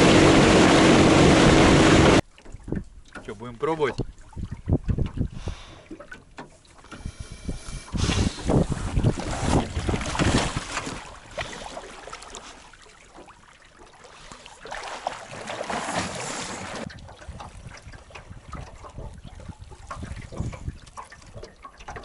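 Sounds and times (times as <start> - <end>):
small waves slapping hull: 0.0 - 7.1, 7.9 - 22.0
water splashing beside boat: 0.0 - 22.0
wind on microphone: 4.0 - 5.6, 6.9 - 11.0, 16.8 - 21.5.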